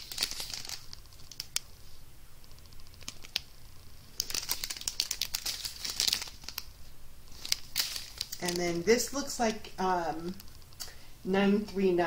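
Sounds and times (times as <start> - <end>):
plastic bags clicking: 0.0 - 1.6, 4.2 - 6.7, 7.3 - 8.8
plastic crinkling: 0.0 - 1.7, 2.4 - 10.9.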